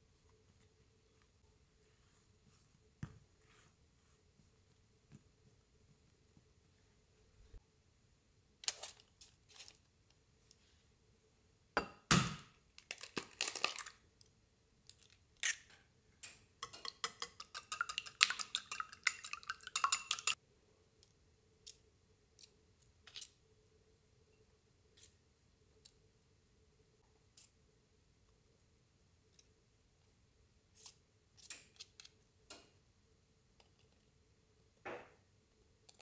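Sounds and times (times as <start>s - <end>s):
kitchenware clinking and clattering: 16.3s - 20.4s.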